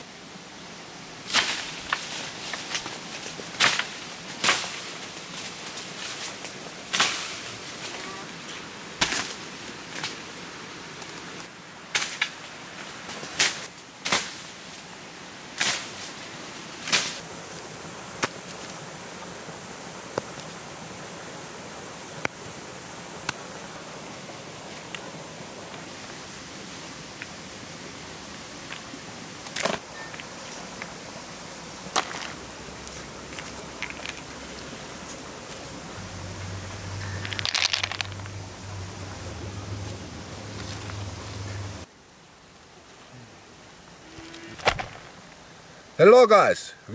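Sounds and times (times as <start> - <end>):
leaves rustling: 0.0 - 46.9
outdoor hiss: 0.0 - 46.9
stick whacking tree branches: 1.3 - 8.1, 9.0 - 10.2, 11.9 - 12.4, 13.1 - 14.6, 15.6 - 16.1, 16.8 - 17.2, 18.2 - 18.6
walnuts knocking in basket: 37.2 - 38.3.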